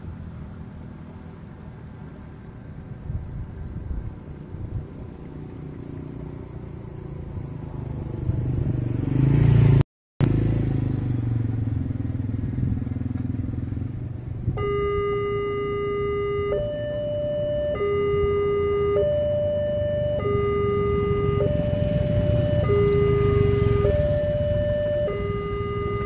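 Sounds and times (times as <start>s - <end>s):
motorcycle passing by: 0.0s - 26.0s
level crossing warning alarm: 14.5s - 26.0s.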